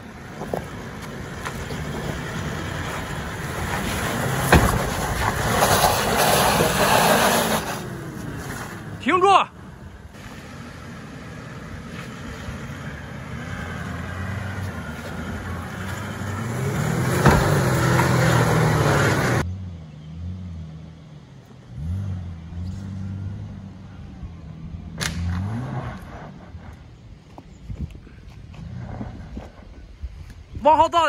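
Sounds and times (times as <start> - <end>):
four-wheel drive engine working hard: 0.0 - 20.2
engine revving in surges: 1.6 - 9.1, 10.1 - 27.1.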